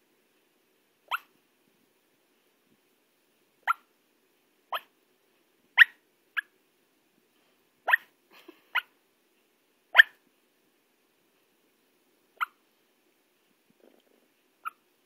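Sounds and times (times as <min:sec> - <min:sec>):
dog yipping in sleep: 0:01.1 - 0:01.3, 0:03.6 - 0:03.9, 0:04.7 - 0:04.9, 0:05.8 - 0:06.5, 0:07.9 - 0:08.1, 0:09.9 - 0:10.2, 0:12.4 - 0:12.6, 0:14.6 - 0:14.8.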